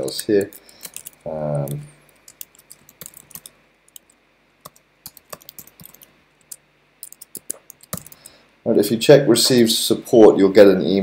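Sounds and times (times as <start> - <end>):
computer keyboard typing: 0.0 - 8.4.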